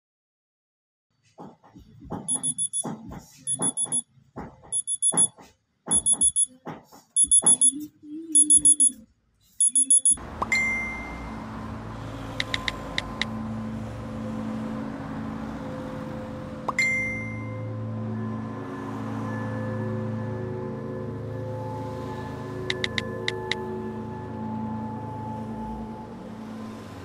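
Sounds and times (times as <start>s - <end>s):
phone alarm beeping: 2.3s - 2.9s, 3.5s - 4.0s, 4.7s - 6.5s, 7.2s - 9.0s, 9.6s - 11.0s, 12.4s - 13.3s, 22.7s - 23.6s.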